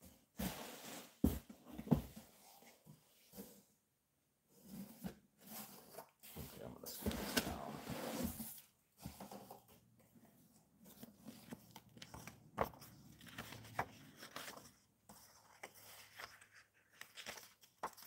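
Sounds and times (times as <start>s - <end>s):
book pages rustling: 4.9s - 9.7s, 10.8s - 18.0s.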